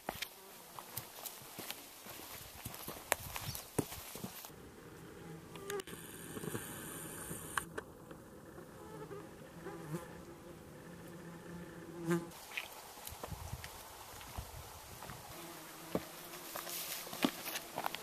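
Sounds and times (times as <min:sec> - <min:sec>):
flying insects buzzing: 0:04.4 - 0:18.0.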